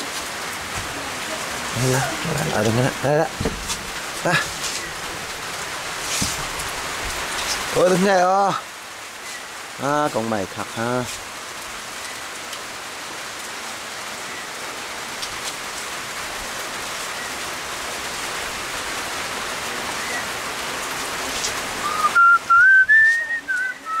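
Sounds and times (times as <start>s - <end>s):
rain falling: 0.0s - 24.0s
person whistling a tune: 21.8s - 24.0s.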